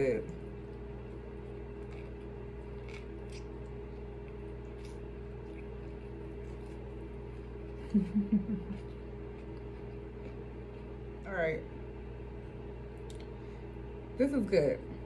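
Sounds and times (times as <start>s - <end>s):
closed-mouth humming: 0.0s - 15.0s
low hum: 0.0s - 15.0s
person chewing: 1.0s - 11.0s.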